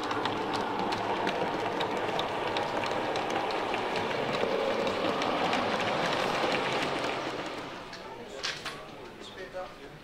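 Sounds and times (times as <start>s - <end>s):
wheels clicking over rail joints: 0.0s - 9.5s
model train wagons rolling: 0.0s - 10.0s.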